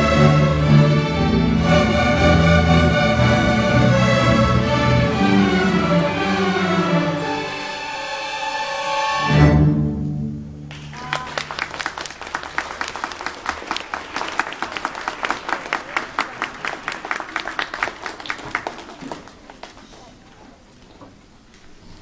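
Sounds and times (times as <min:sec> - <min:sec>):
string orchestra chord: 0:00.0 - 0:10.6
audience applauding: 0:10.7 - 0:20.3.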